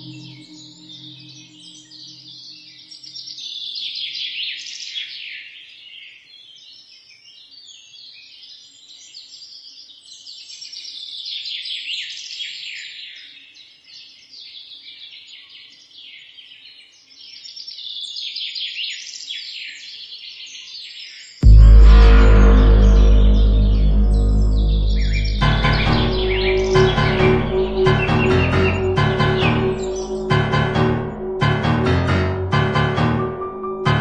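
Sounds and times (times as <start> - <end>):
sudden loud sound: 0.0 - 2.4, 21.4 - 34.0.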